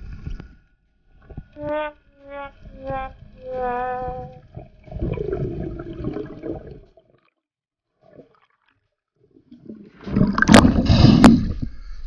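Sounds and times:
underwater water rushing and gurgling: 2.6s - 7.2s, 9.3s - 12.0s.

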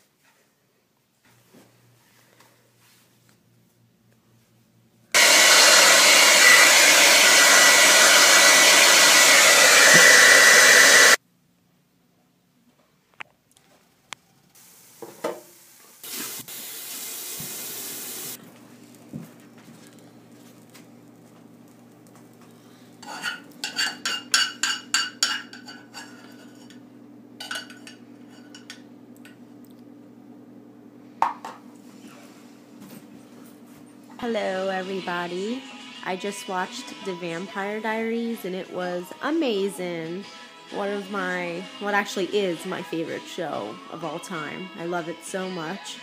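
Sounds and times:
hair dryer blowing: 5.2s - 11.2s.

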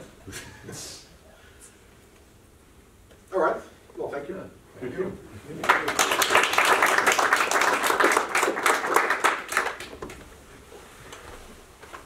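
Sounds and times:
audience applauding: 5.6s - 10.2s.

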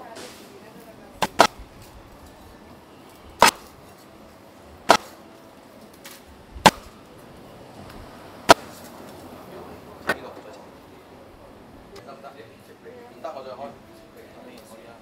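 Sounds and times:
cleaver chopping on block: 1.2s - 1.6s, 3.4s - 3.7s, 4.9s - 5.2s.

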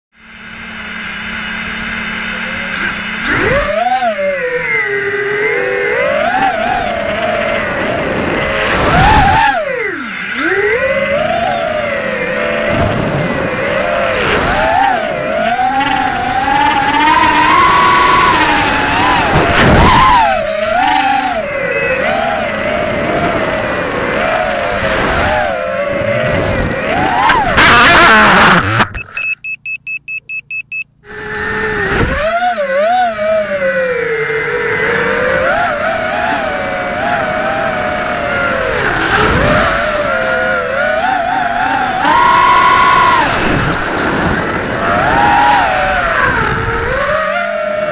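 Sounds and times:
drone motors buzzing whine: 0.1s - 47.9s
drone crashing into grass: 18.6s - 20.4s, 43.2s - 45.1s
high electronic beeps: 21.6s - 22.1s, 28.6s - 31.0s.

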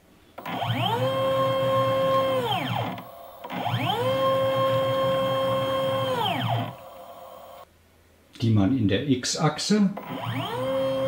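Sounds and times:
stepper motor whine: 0.4s - 7.6s, 10.0s - 11.0s.

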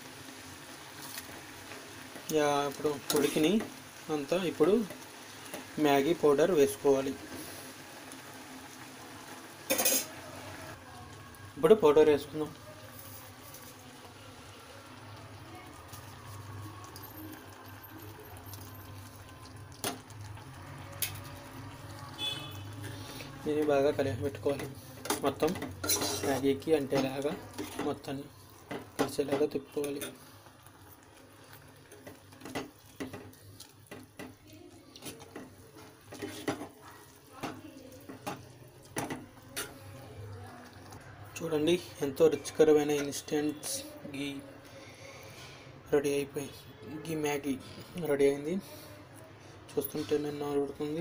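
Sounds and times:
noodles simmering in a pot: 0.0s - 51.0s
wet stirring: 15.7s - 43.8s
spoon scraping against pot: 24.6s - 28.0s, 35.0s - 36.8s.

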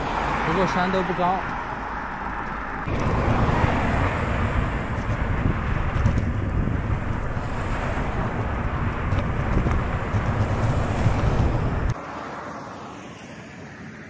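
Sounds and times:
wind buffeting microphone: 2.2s - 12.0s.

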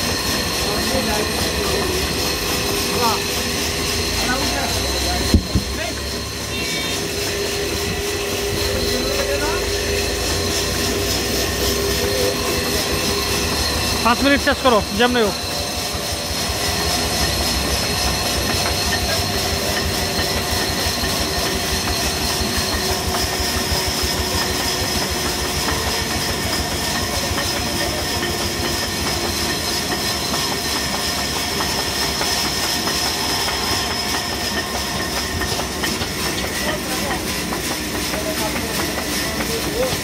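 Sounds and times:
sawmill saw rattling and whining: 0.0s - 40.0s.

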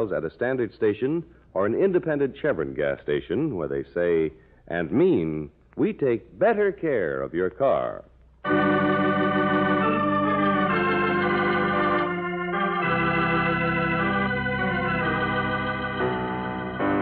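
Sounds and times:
organ chords: 6.5s - 17.0s.

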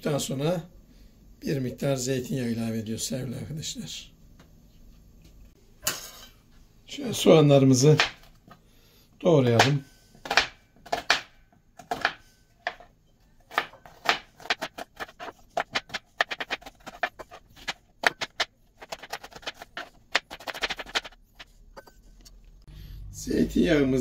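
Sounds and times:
knife chopping onion on board: 8.0s - 8.3s, 9.5s - 12.9s, 13.5s - 21.2s.

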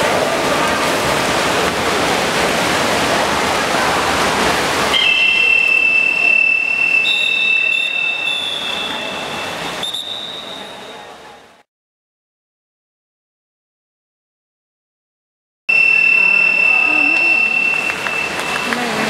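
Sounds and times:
splashing water rushing: 0.0s - 11.2s, 15.7s - 19.0s
high whistle blasts: 4.9s - 11.1s, 15.7s - 18.8s.

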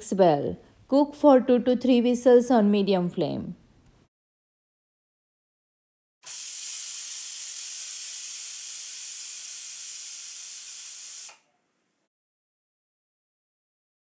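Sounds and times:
pressure cooker venting steam: 6.2s - 11.5s.

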